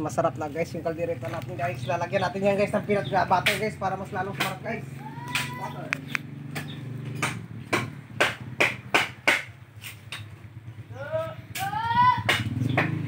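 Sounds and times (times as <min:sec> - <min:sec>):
sharp knocks: 0:03.4 - 0:04.7, 0:05.3 - 0:10.3
person calling out: 0:04.9 - 0:06.0.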